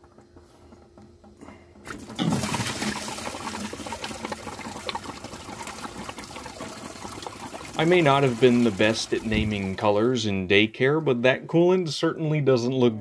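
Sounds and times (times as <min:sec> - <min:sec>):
liquid splashing into a bucket: 0:01.8 - 0:10.0
coolant gushing into a bucket: 0:01.8 - 0:10.2.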